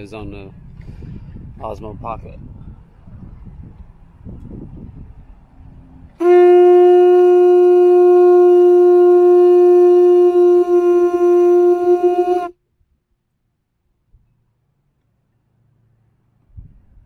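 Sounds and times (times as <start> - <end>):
wind noise on microphone: 0.0 - 12.5, 16.5 - 17.0
conch shell horn blowing: 6.2 - 12.6.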